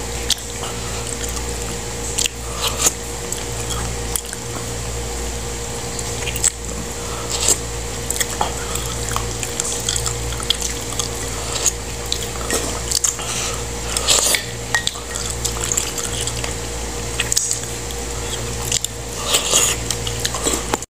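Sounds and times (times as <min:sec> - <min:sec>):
slurping and chewing: 0:00.1 - 0:04.8, 0:05.8 - 0:20.8.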